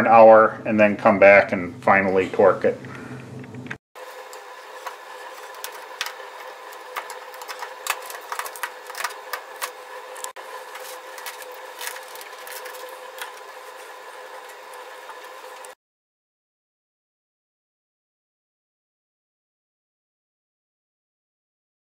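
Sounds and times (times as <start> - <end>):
steady hum: 0.0 - 15.8.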